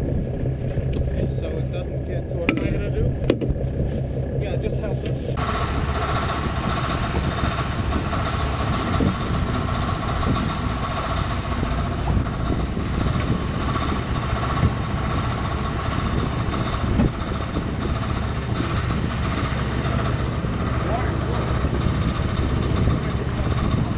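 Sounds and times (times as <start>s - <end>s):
boat engine running: 0.0s - 23.9s.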